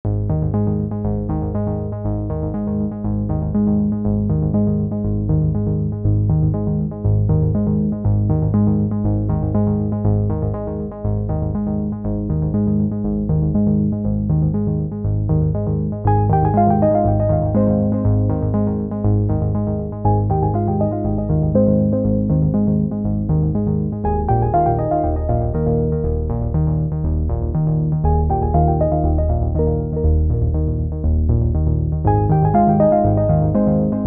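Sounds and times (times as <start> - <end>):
electronic keyboard tune: 14.6 - 34.0.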